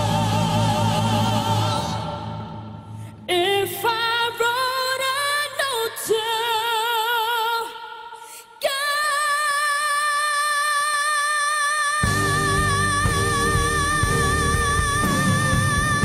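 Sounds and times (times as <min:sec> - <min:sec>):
solo voice singing with vibrato: 0:03.3 - 0:16.0
drums and instruments: 0:12.0 - 0:16.0.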